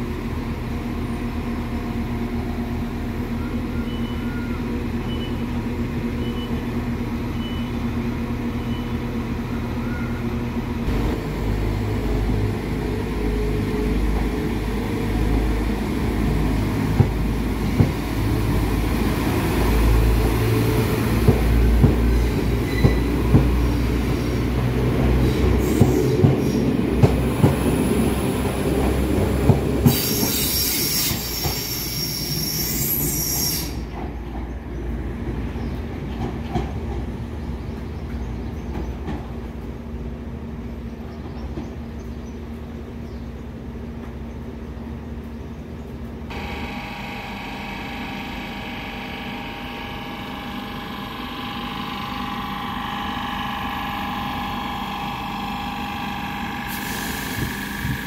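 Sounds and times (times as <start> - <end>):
diesel train engine rumble: 0.0 - 58.0
high wheel squeal: 29.9 - 33.9.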